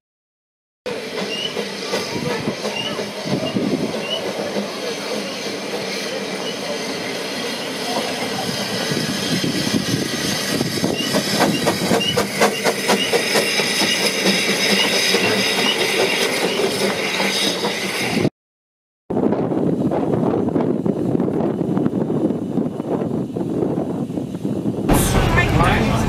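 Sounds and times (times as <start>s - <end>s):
steam hissing: 0.9s - 18.3s.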